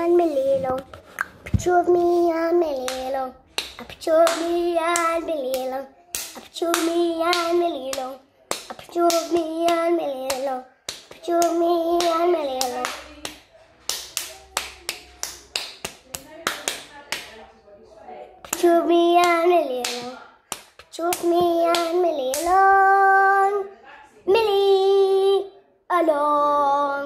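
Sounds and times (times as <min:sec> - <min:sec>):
boy singing wordless tune: 0:00.0 - 0:00.9, 0:01.5 - 0:13.3, 0:18.4 - 0:27.0
hand claps and taps: 0:02.8 - 0:17.4, 0:18.4 - 0:22.6.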